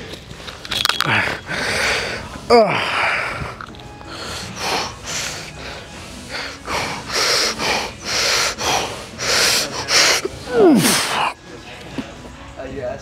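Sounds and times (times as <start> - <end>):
man breathing hard: 1.1 - 11.4.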